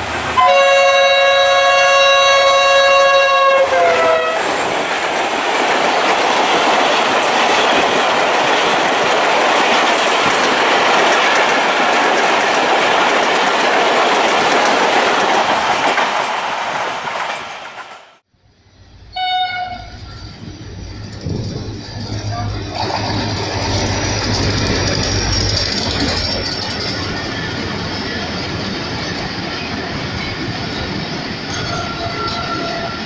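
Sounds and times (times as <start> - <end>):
train coaches rushing and clattering: 0.0 - 18.3, 19.1 - 33.0
diesel locomotive horn: 0.4 - 4.5, 19.0 - 20.2.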